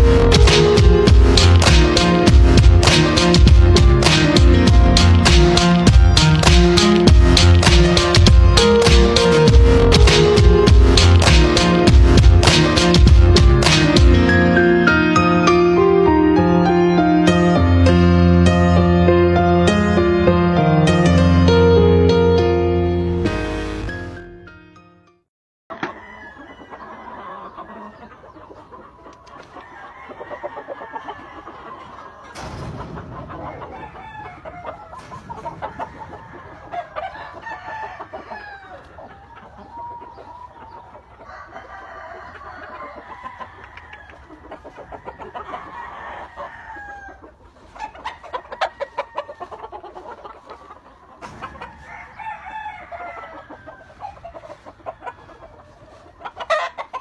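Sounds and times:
roosters crowing and clucking: 0:00.0 - 0:17.0, 0:25.7 - 0:57.0.

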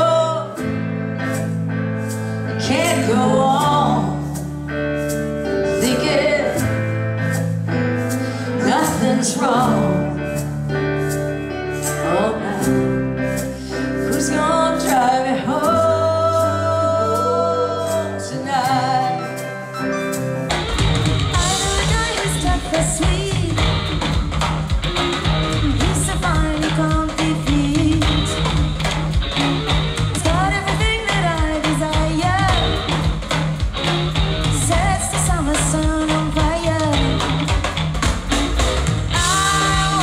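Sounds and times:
woman singing slow ballad: 0:00.0 - 0:01.3, 0:02.4 - 0:04.5, 0:05.4 - 0:07.4, 0:08.0 - 0:10.5, 0:11.9 - 0:19.8, 0:21.4 - 0:23.8, 0:25.7 - 0:28.6, 0:30.2 - 0:32.9, 0:34.6 - 0:37.3, 0:39.2 - 0:40.0
woman singing rock: 0:00.0 - 0:01.4, 0:02.2 - 0:07.4, 0:08.0 - 0:11.1, 0:11.8 - 0:19.9, 0:21.2 - 0:24.3, 0:25.5 - 0:37.7, 0:39.1 - 0:40.0
rock band playing loud: 0:00.0 - 0:16.5, 0:17.2 - 0:40.0.

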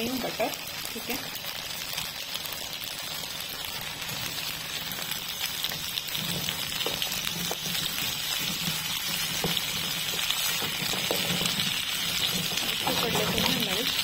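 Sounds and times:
butter sizzling in frying pan: 0:00.0 - 0:14.0
spatula knocking in pan: 0:05.7 - 0:13.7.

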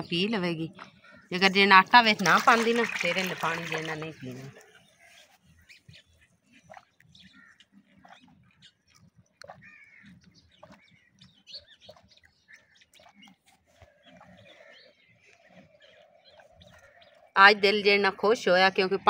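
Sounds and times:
birds chirping: 0:00.0 - 0:19.0
goat slurping water: 0:01.9 - 0:04.9.

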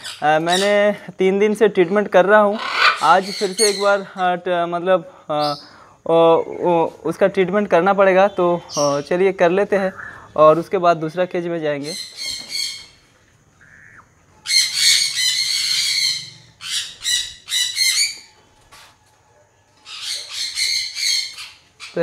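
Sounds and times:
parakeet screeching: 0:02.5 - 0:04.0, 0:11.8 - 0:13.0, 0:13.6 - 0:18.3, 0:19.8 - 0:22.0.

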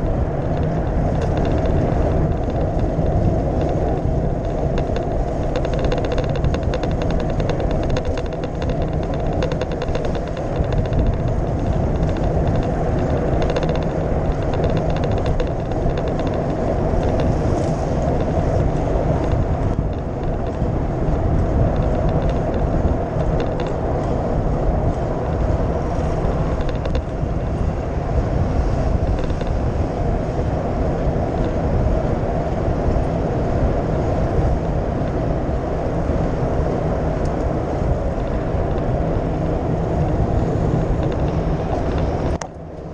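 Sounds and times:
wind rushing over microphone: 0:00.0 - 0:42.9.

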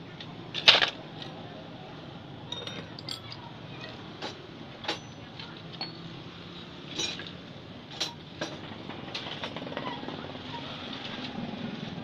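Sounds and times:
sharp metallic clinks: 0:02.5 - 0:03.5, 0:04.9 - 0:06.2.

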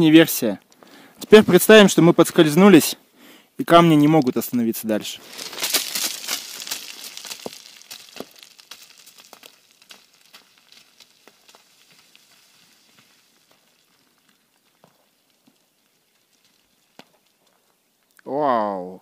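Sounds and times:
small stones clattering: 0:03.7 - 0:18.0
rock tumbling down scree: 0:03.8 - 0:17.8.

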